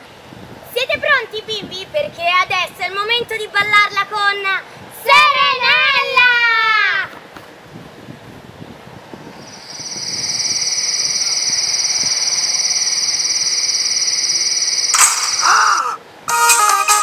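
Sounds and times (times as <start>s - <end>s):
cicada buzzing: 9.4s - 16.6s.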